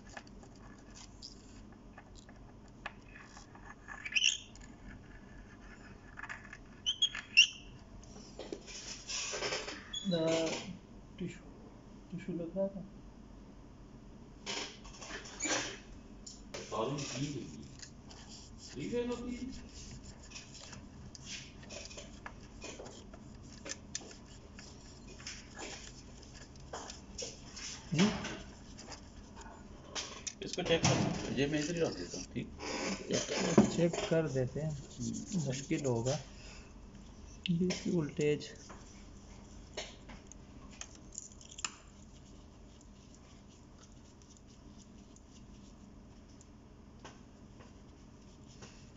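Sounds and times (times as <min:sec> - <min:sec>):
tissue rubbing on glass: 0:16.7 - 0:29.6, 0:33.2 - 0:36.6.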